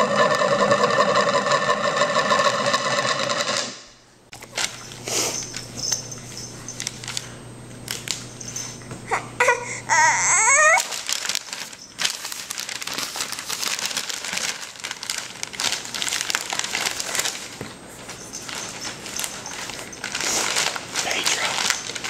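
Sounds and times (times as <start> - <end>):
baby squealing: 9.1 - 11.0
paper crinkling: 10.3 - 22.0.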